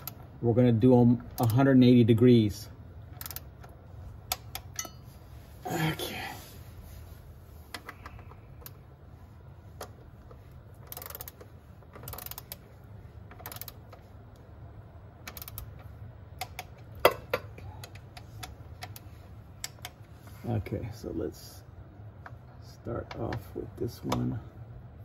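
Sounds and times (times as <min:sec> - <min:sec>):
ratchet wrench clicking: 0:00.0 - 0:00.2, 0:01.3 - 0:01.8, 0:03.1 - 0:05.0, 0:10.8 - 0:14.0, 0:15.2 - 0:20.0
metal clicks: 0:03.1 - 0:05.0, 0:09.8 - 0:12.6, 0:13.3 - 0:14.4, 0:15.2 - 0:20.1.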